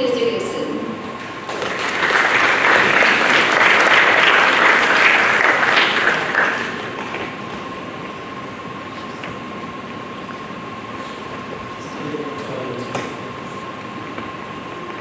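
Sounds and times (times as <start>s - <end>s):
audience applauding: 1.4s - 7.4s.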